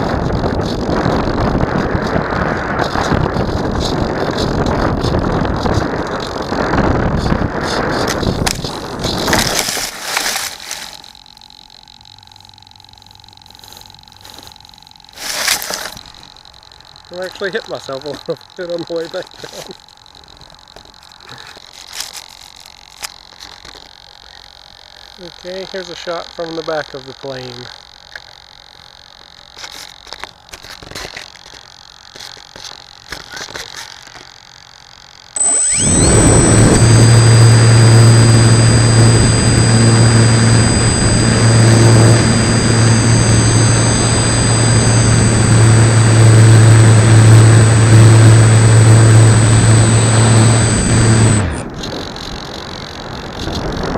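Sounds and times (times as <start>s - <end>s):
wind buffeting camera: 0.0s - 9.8s, 35.6s - 53.9s
faint steady hum: 0.0s - 53.9s
faint steady whine: 0.0s - 53.9s
plane scraping through grass: 7.2s - 11.1s, 15.1s - 16.0s.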